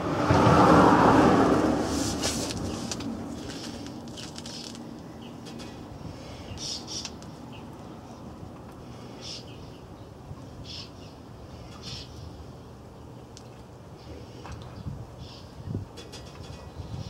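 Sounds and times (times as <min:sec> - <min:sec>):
vehicle passing: 0:00.0 - 0:05.0.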